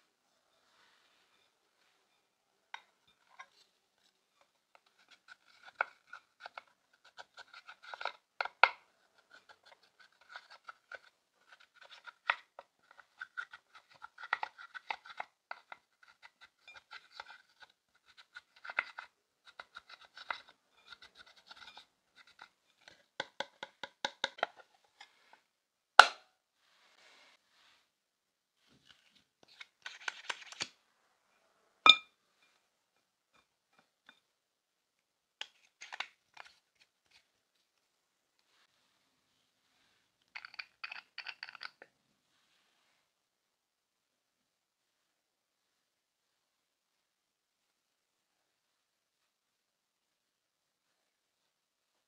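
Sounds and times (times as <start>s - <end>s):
brush handle scraping eyeshadow: 4.4s - 8.2s, 9.2s - 22.6s.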